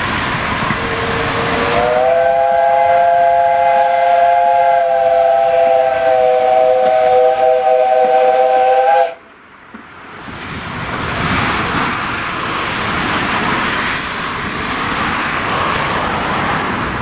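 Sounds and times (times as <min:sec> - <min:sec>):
steady rushing noise: 0:00.0 - 0:17.0
steam locomotive chime whistle: 0:00.8 - 0:09.2.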